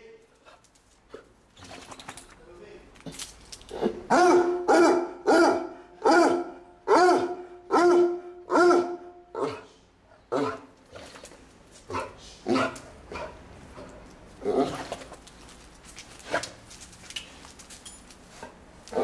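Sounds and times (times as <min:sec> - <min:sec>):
dog barking excitedly: 0:03.8 - 0:09.6.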